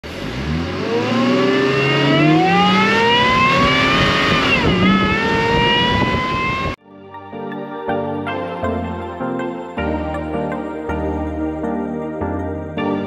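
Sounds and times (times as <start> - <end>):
car engine accelerating hard: 0.0 - 6.8.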